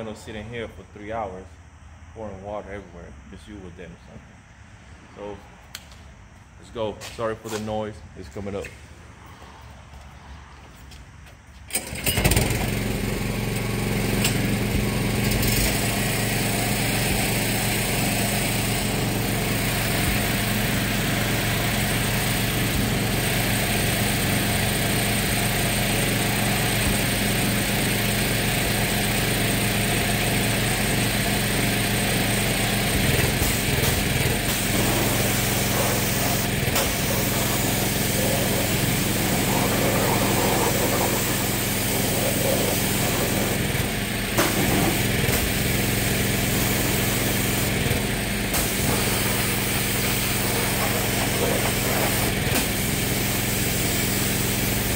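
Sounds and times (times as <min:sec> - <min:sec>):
small engine running: 0:11.7 - 0:54.9.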